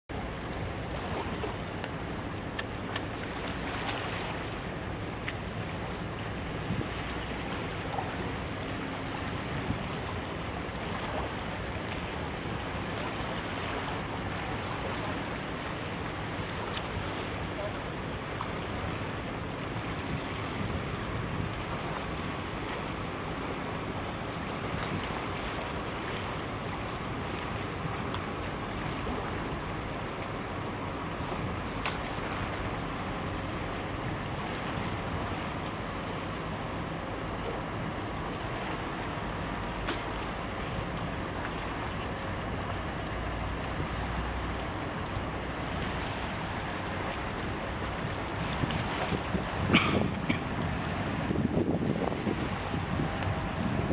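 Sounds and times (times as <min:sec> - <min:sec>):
wind: 0:00.0 - 0:53.9
ship engine drone: 0:00.1 - 0:53.9
wind buffeting microphone: 0:47.9 - 0:53.9.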